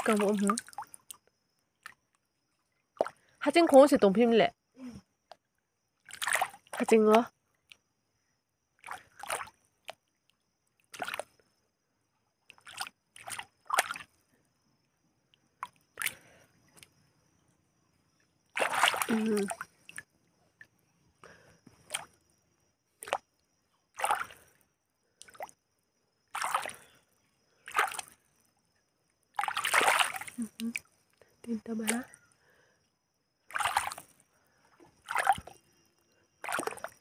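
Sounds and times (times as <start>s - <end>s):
hand splashing in muddy water: 6.1s - 6.8s, 8.8s - 9.6s, 10.9s - 11.3s, 12.5s - 14.1s, 18.6s - 20.0s, 24.0s - 24.4s, 26.3s - 26.8s, 27.7s - 28.2s, 29.4s - 30.8s, 33.5s - 34.2s, 35.0s - 35.6s, 36.4s - 37.0s.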